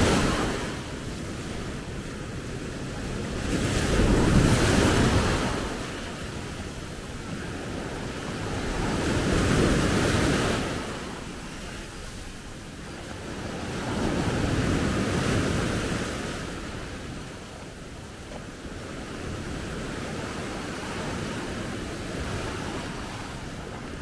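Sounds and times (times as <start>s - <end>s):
small waves washing up beach: 0.0s - 24.0s.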